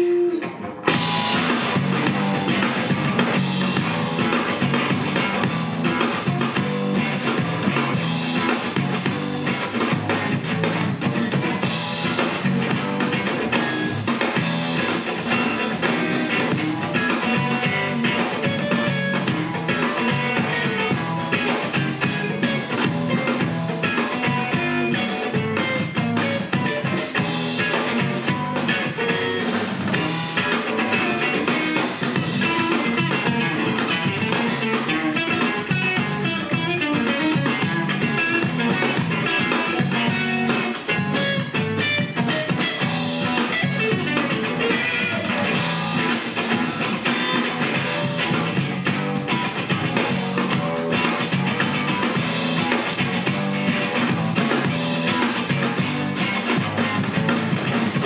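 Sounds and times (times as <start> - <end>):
drum kit: 0.0 - 58.0
electric bass: 0.0 - 58.0
electric guitar: 0.0 - 58.0.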